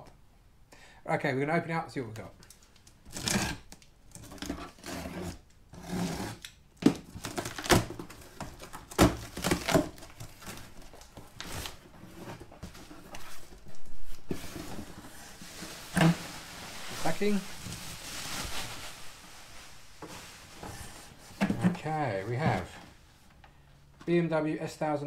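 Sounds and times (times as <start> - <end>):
packing tape ripping: 3.1 - 11.8
bubble wrap rustling: 6.9 - 22.8
cardboard flaps scraping: 7.2 - 22.8.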